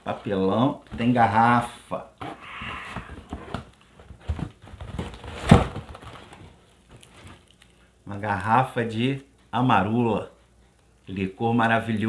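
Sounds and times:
knocks in cardboard box: 2.2 - 6.1
packing paper rustling: 3.2 - 7.8.

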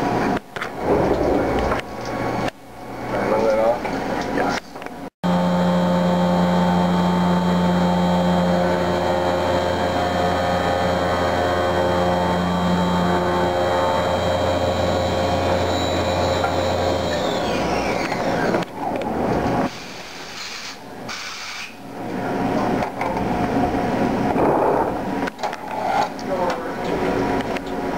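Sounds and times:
machine hum: 0.1 - 4.4, 5.2 - 19.7
milling machine spindle whine: 5.3 - 18.7.

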